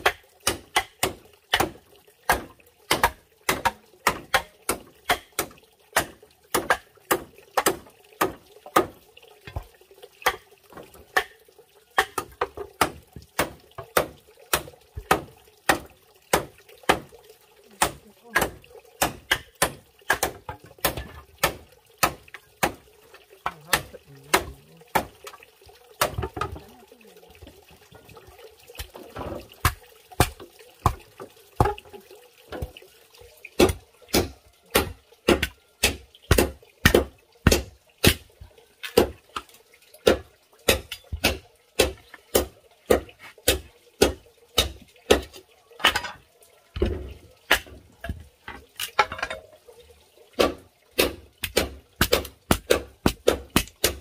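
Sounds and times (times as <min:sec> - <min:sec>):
machete striking bamboo: 0:17.8 - 0:22.8, 0:50.4 - 0:54.0.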